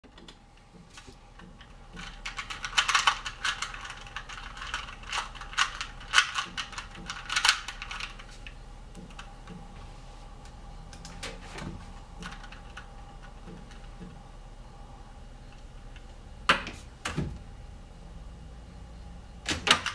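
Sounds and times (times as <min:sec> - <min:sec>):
puzzle cube clicking: 0:02.0 - 0:09.3.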